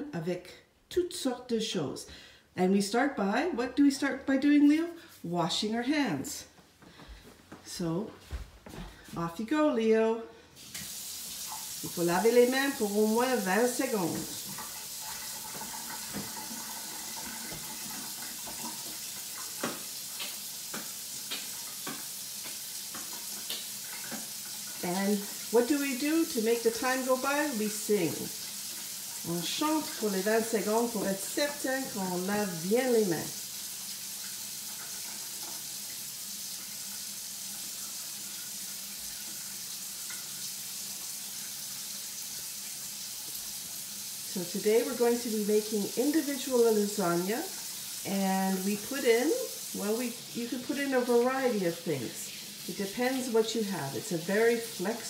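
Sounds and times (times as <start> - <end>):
hands washing under water: 10.6 - 41.3
faucet running: 10.6 - 55.0.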